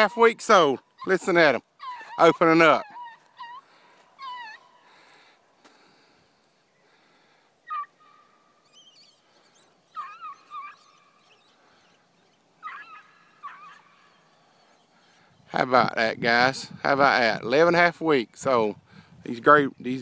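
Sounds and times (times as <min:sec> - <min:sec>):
puppies baying and yelping: 0:00.0 - 0:05.4, 0:06.9 - 0:15.5.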